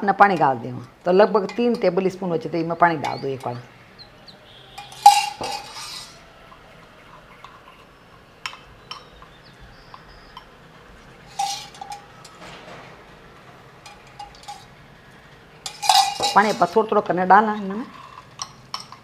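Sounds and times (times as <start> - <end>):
cup and spoon clinking on bowl: 4.7 - 6.6, 7.4 - 9.4, 11.3 - 12.8, 13.8 - 14.7, 15.6 - 16.8, 17.9 - 19.0
water pouring: 4.7 - 9.0.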